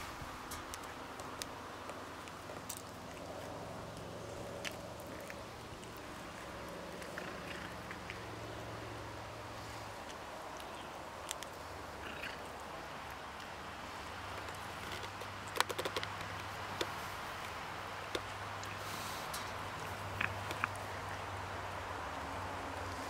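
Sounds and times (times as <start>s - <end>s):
cat chewing and crunching: 0.1s - 23.0s.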